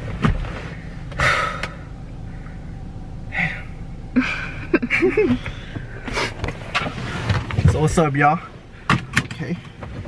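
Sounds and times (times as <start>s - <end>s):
low hum inside car: 0.0s - 10.0s
person exhaling breathily: 1.2s - 1.9s.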